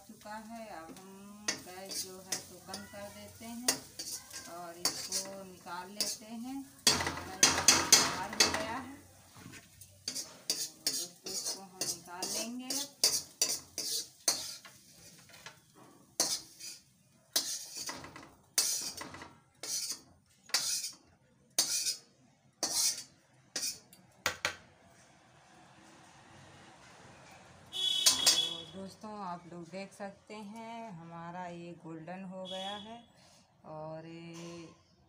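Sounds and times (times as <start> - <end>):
metal spoon scraping a wok: 0.0 - 21.0, 21.6 - 22.0, 22.6 - 24.0, 27.8 - 28.8.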